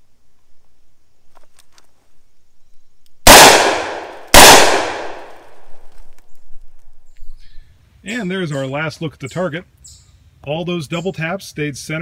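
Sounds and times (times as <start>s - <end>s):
revolver shots with echo: 3.3s - 5.5s.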